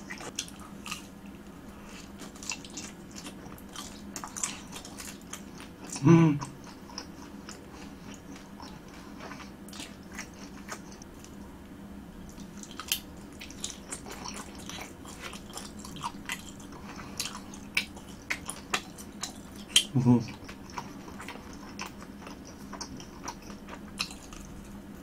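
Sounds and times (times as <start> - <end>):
chewing crispy food: 0.0 - 11.4, 12.2 - 25.0.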